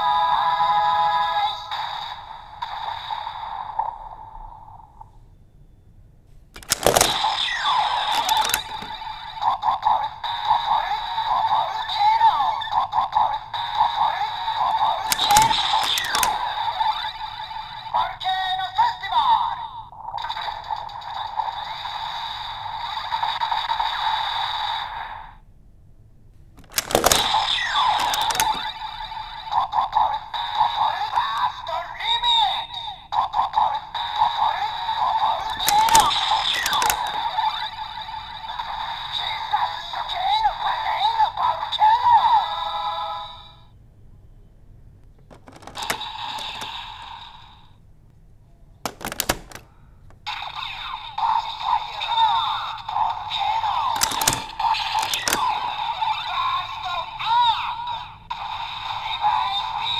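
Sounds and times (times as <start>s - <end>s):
loud plastic clack: 6.6s - 9.0s, 15.1s - 16.4s, 26.6s - 28.7s, 35.5s - 37.2s, 45.2s - 46.7s, 48.9s - 49.7s, 54.0s - 55.5s
plastic toy clicks: 6.6s - 9.0s, 15.1s - 16.5s, 26.6s - 28.7s, 35.5s - 37.3s, 45.3s - 46.7s, 48.9s - 49.7s, 54.0s - 55.6s.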